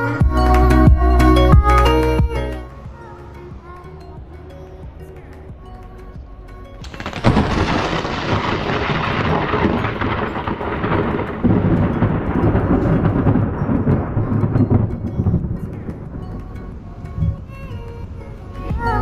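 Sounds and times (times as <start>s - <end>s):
rolling thunder rumble: 1.6s - 19.0s
thunder crack: 6.8s - 17.6s.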